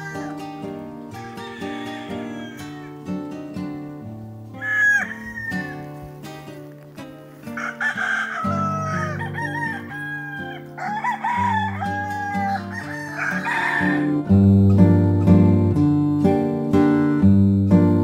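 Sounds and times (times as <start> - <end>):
roosters crowing: 0.0 - 3.3, 4.5 - 6.2, 7.4 - 14.4
acoustic guitar music: 0.0 - 18.0.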